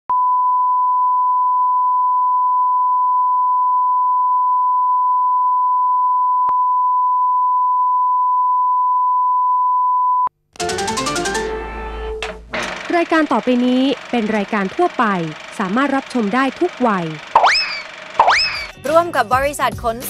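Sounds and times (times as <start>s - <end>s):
steady pure test tone: 11.5s - 18.8s.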